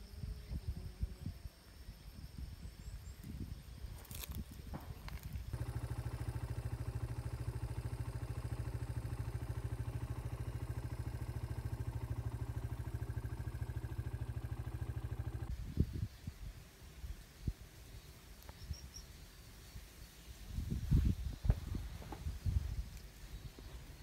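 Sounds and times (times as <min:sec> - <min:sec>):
motorcycle engine idling: 0:04.8 - 0:15.6.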